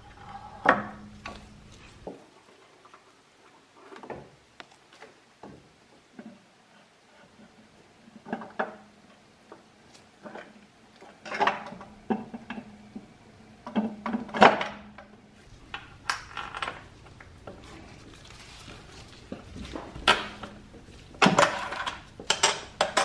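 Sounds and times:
faint steady hum: 0.0 - 23.0
metal tools clinking and knocking: 21.2 - 23.0.

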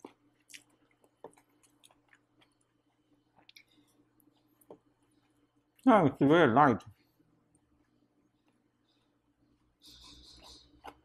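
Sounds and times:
faint chewing: 0.0 - 5.9, 6.9 - 11.0.

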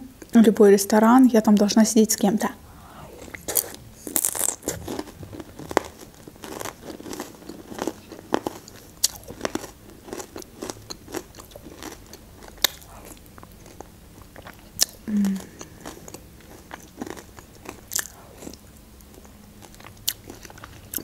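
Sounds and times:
crunchy chewing: 3.1 - 21.0.

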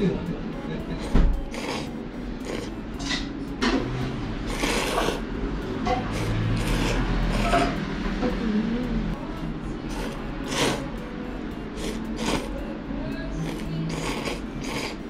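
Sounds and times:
noodles being slurped: 1.5 - 2.7, 4.4 - 5.2, 6.0 - 7.8, 9.9 - 10.9, 11.8 - 12.5, 13.4 - 15.0.

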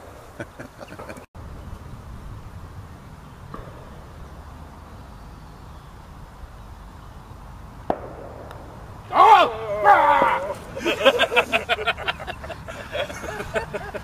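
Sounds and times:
low outdoor rumble: 0.1 - 14.0.

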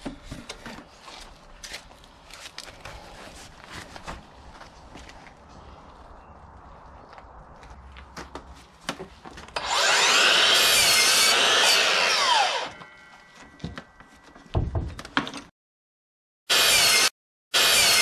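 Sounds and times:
miter saw cutting board: 9.6 - 13.0, 16.5 - 18.0.

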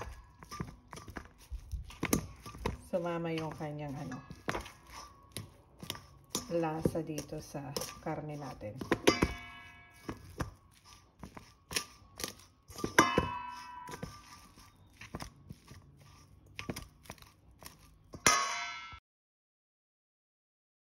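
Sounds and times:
spoon clinking against metal bowl: 0.0 - 10.6, 11.3 - 15.8
spoon mixing minced meat: 0.0 - 18.4.

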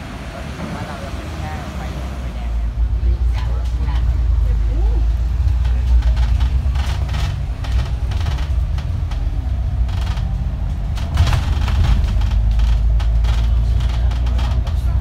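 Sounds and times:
bus engine and road rumble: 0.0 - 15.0
cabin rattles and knocks: 6.0 - 14.8.

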